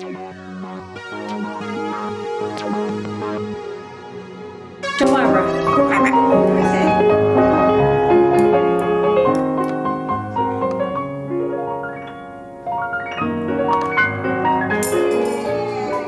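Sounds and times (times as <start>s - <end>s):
piano music: 4.9s - 16.0s.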